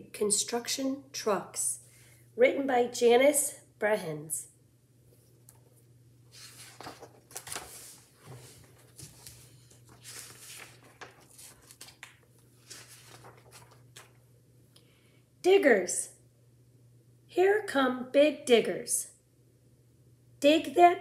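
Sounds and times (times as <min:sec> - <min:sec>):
soft clicks of pages turning: 0:05.2 - 0:14.2
paper rustling: 0:05.2 - 0:14.3.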